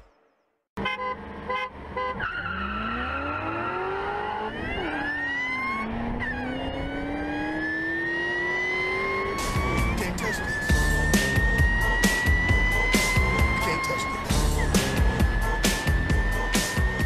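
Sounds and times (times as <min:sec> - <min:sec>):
car engine accelerating hard: 0:01.2 - 0:17.0
high whine: 0:10.7 - 0:17.0.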